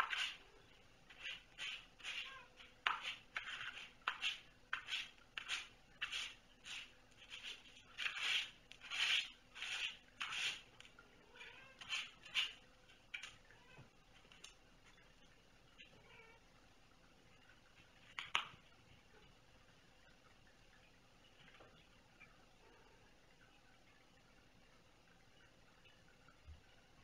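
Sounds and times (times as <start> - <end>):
cat licking and grooming: 0.0 - 13.5.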